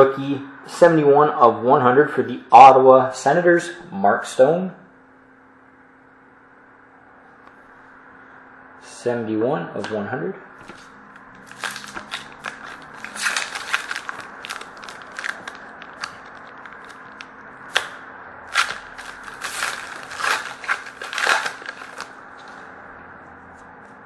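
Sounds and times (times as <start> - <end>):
trading cards being shuffled: 10.6 - 17.9, 18.5 - 22.6.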